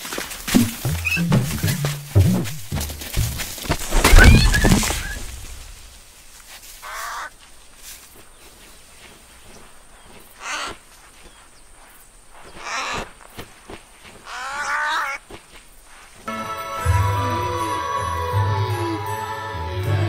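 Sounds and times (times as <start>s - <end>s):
loud crashing thud: 0.5s - 5.9s.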